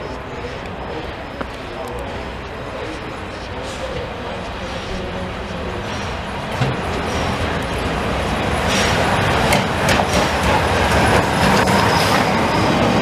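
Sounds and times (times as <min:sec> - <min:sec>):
steam locomotive rumble and hiss: 0:00.0 - 0:13.0
sharp knocks and clanks: 0:09.5 - 0:11.7.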